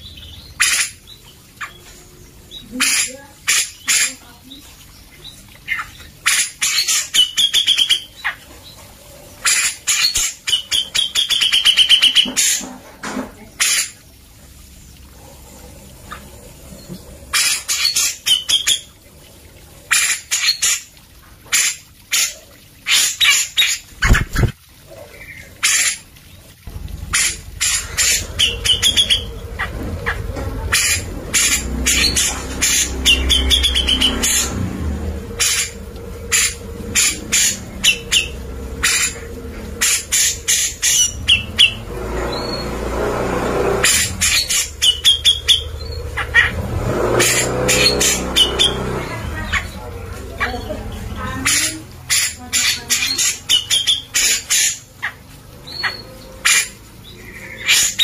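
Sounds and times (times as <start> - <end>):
low hum: 26.6 - 52.1.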